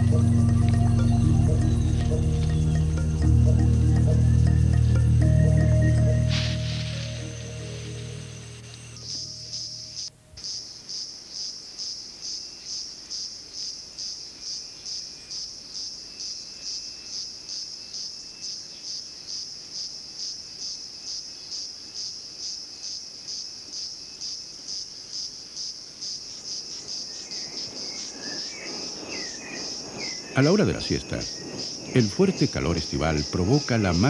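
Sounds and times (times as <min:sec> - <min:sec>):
insect chirping calls: 0:00.0 - 0:34.0
insects buzzing: 0:00.0 - 0:34.0.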